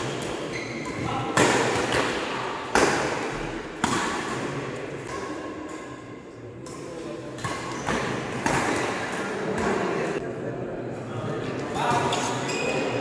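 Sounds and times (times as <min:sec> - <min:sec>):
rackets striking shuttlecock: 0:00.0 - 0:09.8.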